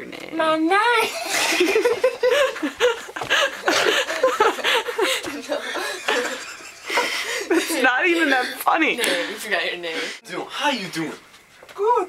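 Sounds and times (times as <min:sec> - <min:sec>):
teenagers laughing: 0:01.0 - 0:10.2.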